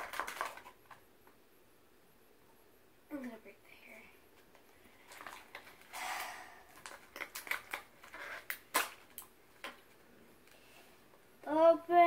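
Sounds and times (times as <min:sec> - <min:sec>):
plastic capsule scraping: 0:05.1 - 0:08.9.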